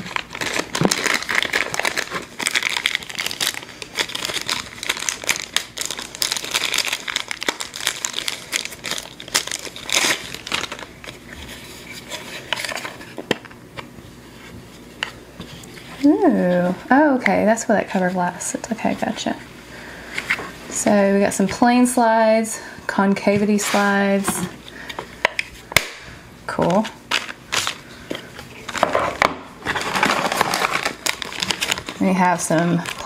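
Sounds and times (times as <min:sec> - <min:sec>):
plastic bag crinkling: 0:00.0 - 0:13.2, 0:27.1 - 0:33.0.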